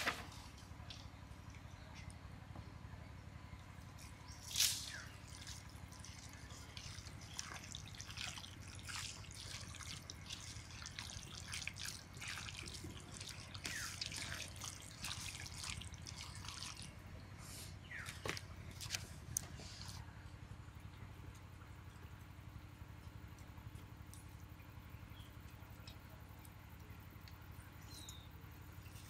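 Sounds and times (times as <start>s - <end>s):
wet squelches of marinating chicken: 4.0s - 20.1s.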